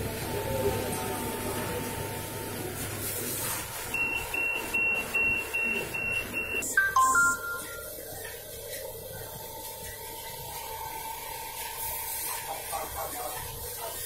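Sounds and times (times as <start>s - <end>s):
short high beeps: 5.2s - 7.9s.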